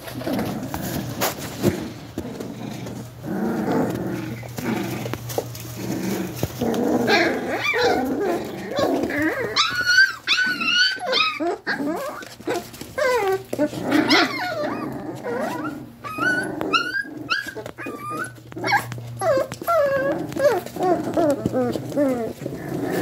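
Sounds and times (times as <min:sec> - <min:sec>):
puppies growling: 0:00.0 - 0:23.0
puppies yelping and whining: 0:00.0 - 0:23.0.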